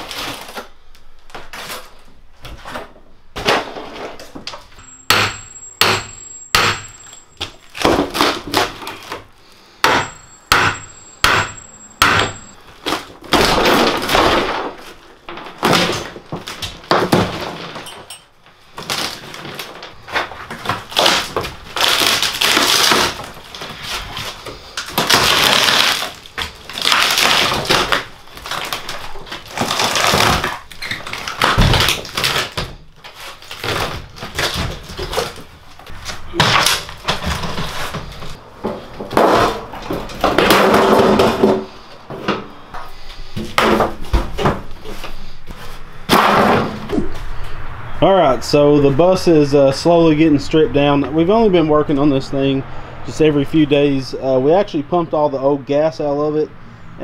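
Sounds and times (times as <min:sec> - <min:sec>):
plywood splintering and tearing: 0:00.0 - 0:04.2, 0:07.6 - 0:09.3, 0:12.7 - 0:17.8, 0:18.6 - 0:41.7, 0:46.1 - 0:47.1
sharp knocks: 0:05.0 - 0:07.0, 0:09.8 - 0:12.5.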